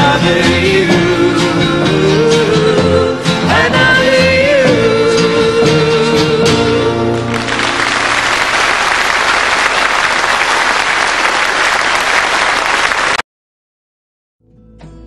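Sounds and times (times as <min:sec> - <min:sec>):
audience applause: 0:07.1 - 0:13.2.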